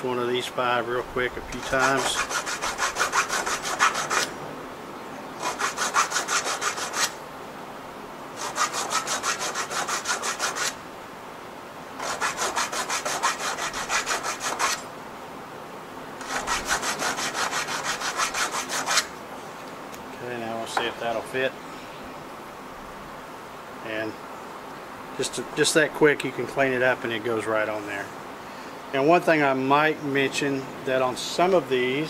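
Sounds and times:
file rasping on metal screw: 1.5s - 4.3s, 5.4s - 7.2s, 8.4s - 10.8s, 12.0s - 14.8s, 16.2s - 19.1s.

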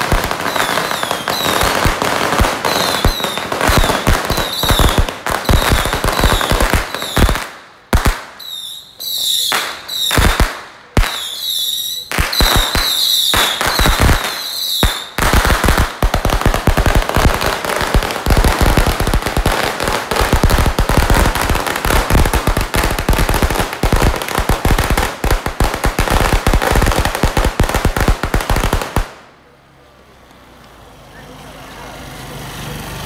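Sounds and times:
firecrackers bangs: 0.0s - 29.3s
rapid firecracker crackle: 0.0s - 29.6s
high wavering whistle: 8.4s - 10.1s.

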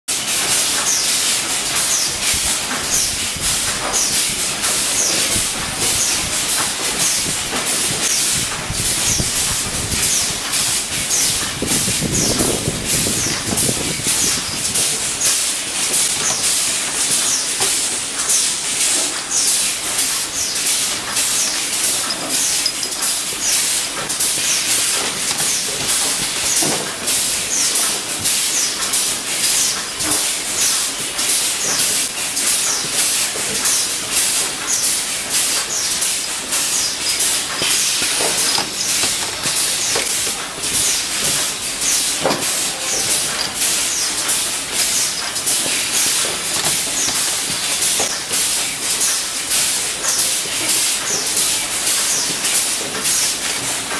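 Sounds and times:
metal clinks: 21.9s - 23.2s, 37.0s - 41.4s, 42.3s - 48.1s.

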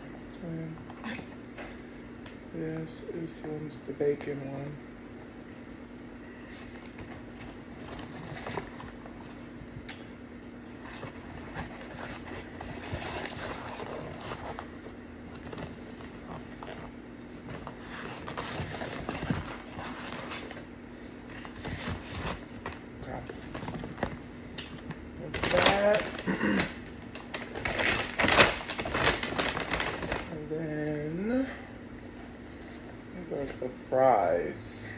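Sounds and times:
low steady hum: 0.0s - 34.9s
paper wrappers rustling: 10.7s - 31.5s.

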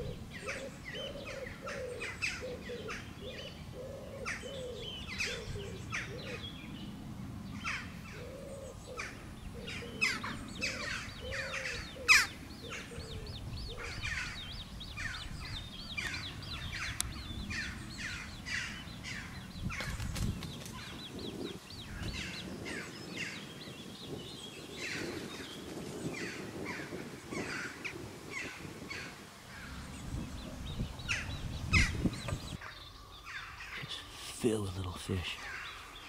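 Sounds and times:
birds calling: 0.0s - 36.0s.

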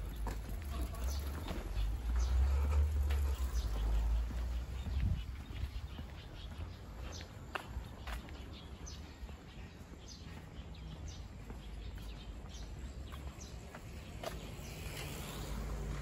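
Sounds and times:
footsteps on paved path: 0.0s - 16.0s.

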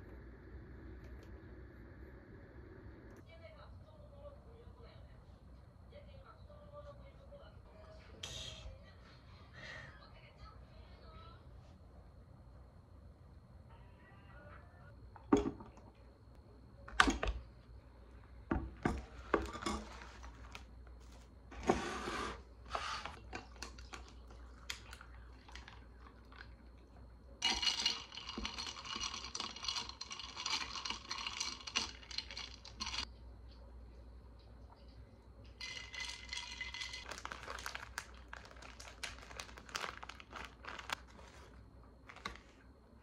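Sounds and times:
coffee pouring into a glass: 23.6s - 33.1s, 35.6s - 40.9s
ice clinking against glass: 27.4s - 33.0s, 35.6s - 37.9s.

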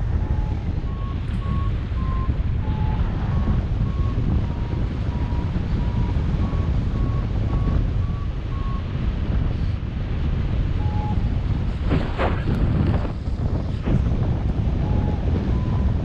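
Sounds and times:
wind rushing over microphone: 0.0s - 16.0s
variometer beeping: 0.1s - 3.0s, 10.8s - 11.3s.

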